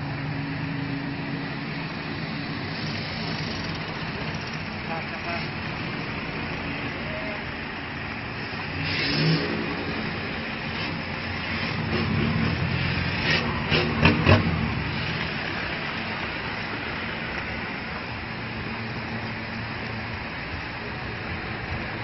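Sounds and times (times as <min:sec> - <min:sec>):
engines revving: 0:00.0 - 0:22.0
vehicles driving past: 0:00.0 - 0:22.0.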